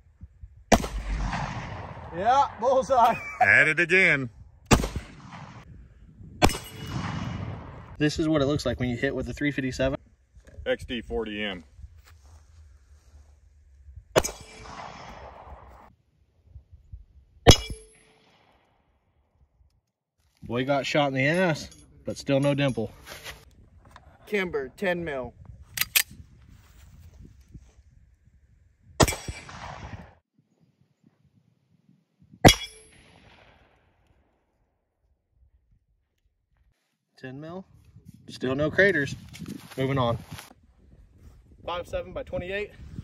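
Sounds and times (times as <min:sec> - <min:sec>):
pistol shots: 0:00.7 - 0:02.1, 0:04.7 - 0:05.6, 0:06.4 - 0:07.9, 0:14.2 - 0:15.8, 0:17.5 - 0:18.4, 0:29.0 - 0:30.2
bullet ringing on steel target: 0:06.4 - 0:07.0, 0:17.5 - 0:18.2, 0:32.4 - 0:33.1.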